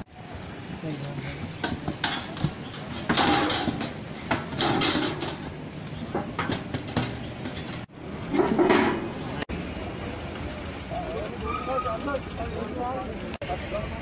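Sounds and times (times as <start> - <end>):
metal hatch scraping and knocking: 1.6 - 9.2.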